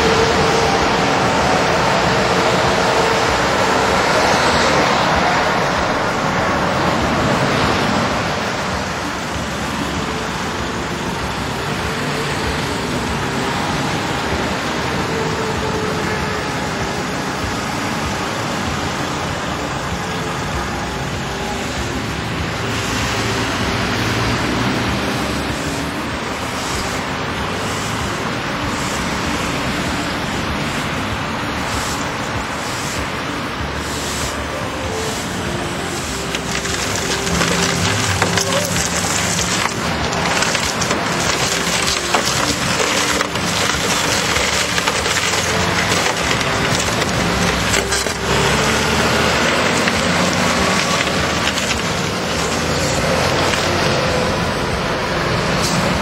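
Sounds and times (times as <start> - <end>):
motorway traffic passing: 0.0 - 56.0
broom scraping asphalt: 22.7 - 54.4.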